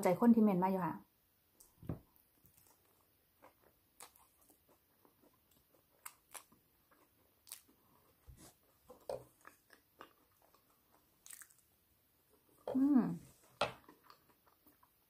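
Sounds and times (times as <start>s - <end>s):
cracker being chewed: 1.6s - 11.7s, 13.4s - 15.0s.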